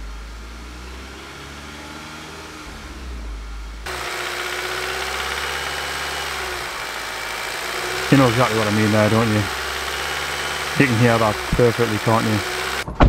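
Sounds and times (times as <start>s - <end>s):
car engine running with knocking rattle: 3.9s - 13.0s.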